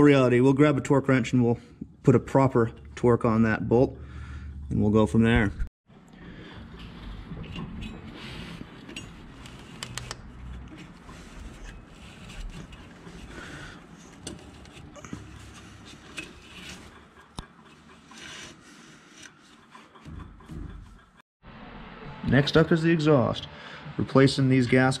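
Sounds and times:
rubber belt rubbing and scraping: 6.6 - 21.2.

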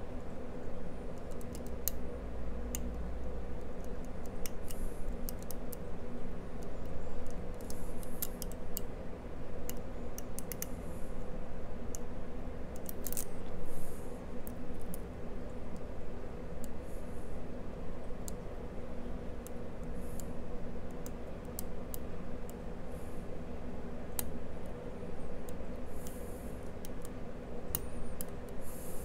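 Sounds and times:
steady low hum: 0.0 - 29.0
lock pick clicking and scraping: 12.8 - 13.3.

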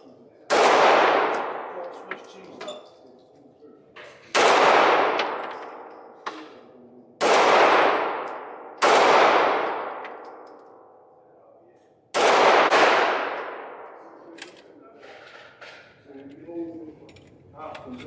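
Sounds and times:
pistol shots echoing: 0.5 - 2.2, 4.3 - 6.4, 7.2 - 11.0, 12.1 - 14.2.

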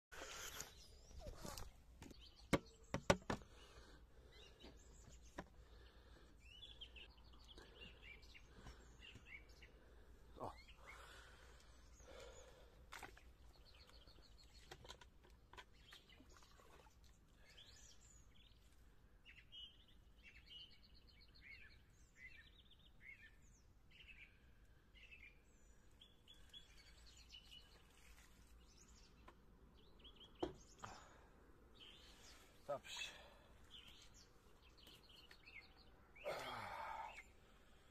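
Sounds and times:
faint birdsong: 0.1 - 37.9
sharp knocks: 2.5 - 3.4.

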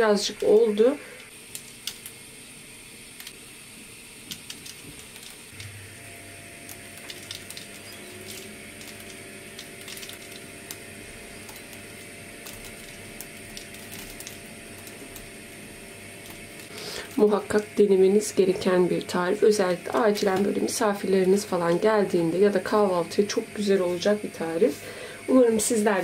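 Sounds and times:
pastry crust crackling: 0.6 - 24.7.

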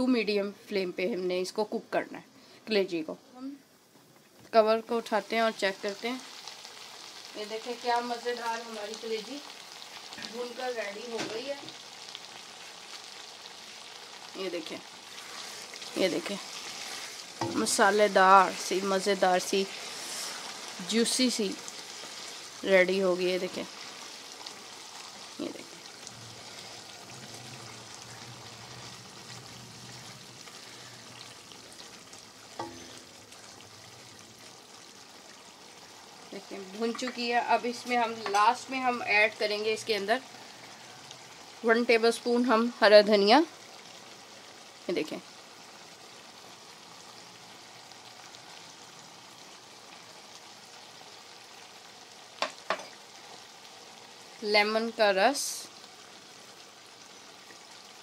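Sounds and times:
food sizzling in frying pan: 0.0 - 58.0.

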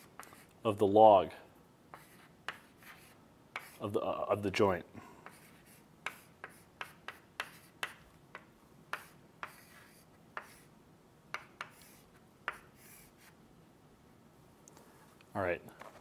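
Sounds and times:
chalk tapping and scratching on blackboard: 0.0 - 0.6, 1.9 - 3.9, 5.2 - 10.7, 11.3 - 13.4.

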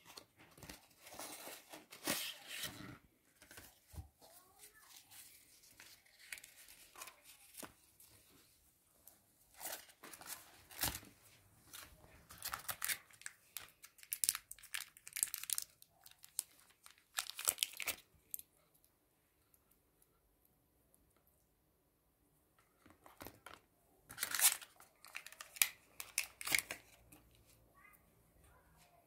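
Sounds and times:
paper crinkling and tearing: 0.0 - 7.8, 11.7 - 18.1, 24.1 - 27.0.

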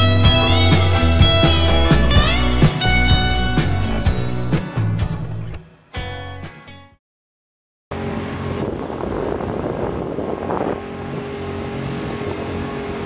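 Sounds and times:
boat motor running: 0.0 - 5.4, 7.9 - 13.0
wind buffeting microphone: 8.0 - 13.0.

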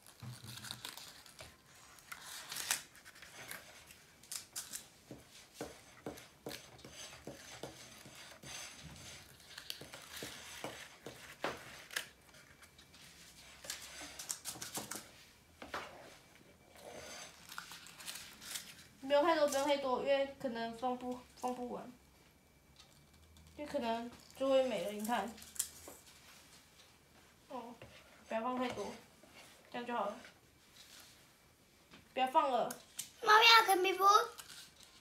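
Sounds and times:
paper liners rustling: 0.0 - 15.2, 16.8 - 19.8.

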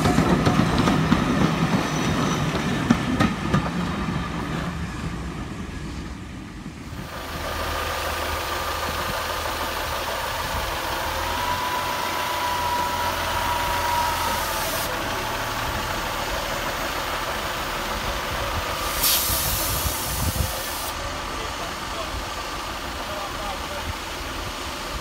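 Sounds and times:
diesel train engine throbbing: 0.0 - 25.0
loud hiss of air: 11.2 - 15.0, 18.5 - 21.0.

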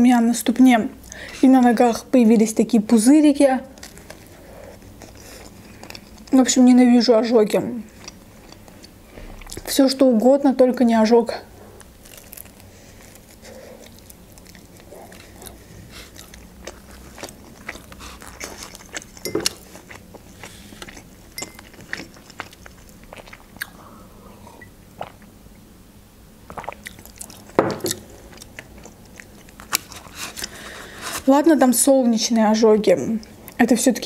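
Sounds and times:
close chewing with mouth clicks: 3.7 - 6.7, 7.9 - 9.7, 11.8 - 25.3, 26.5 - 31.3.

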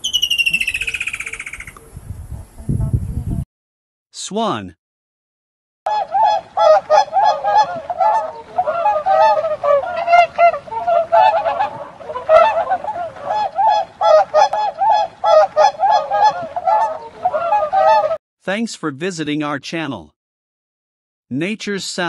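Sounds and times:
swans honking: 5.9 - 18.2.

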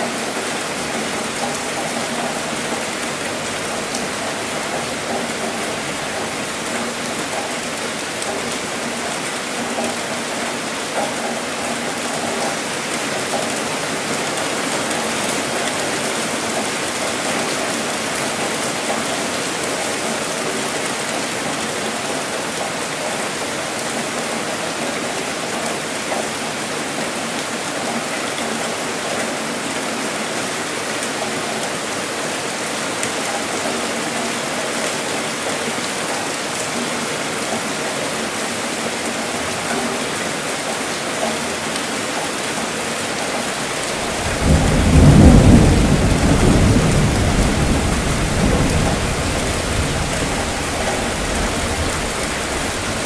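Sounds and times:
steady rain hissing: 0.0 - 53.0
deep thunder rumble: 44.0 - 53.0.

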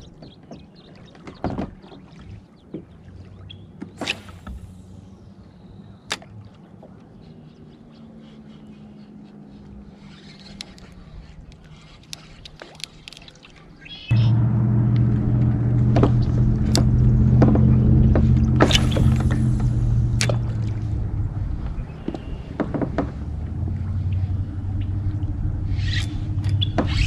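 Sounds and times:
fishing rod swish: 4.0 - 5.1, 18.5 - 21.0
soft clicks of handling reel: 10.0 - 13.5
reel click: 10.1 - 13.4
reel spool whirring: 14.1 - 21.4.

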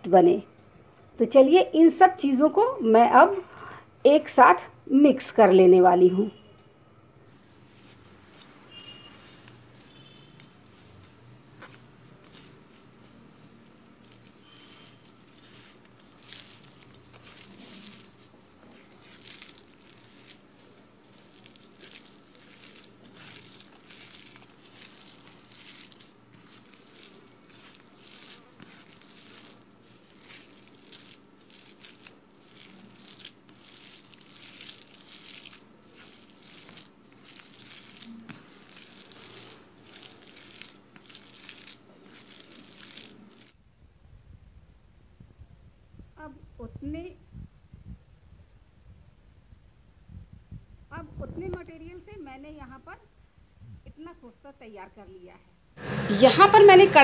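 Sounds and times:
hand squeezing minced meat: 7.3 - 43.6.

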